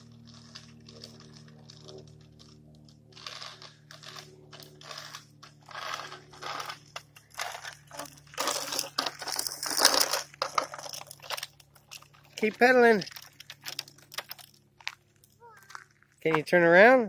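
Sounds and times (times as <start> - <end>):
bike wheels crunching on asphalt: 0.0 - 17.0.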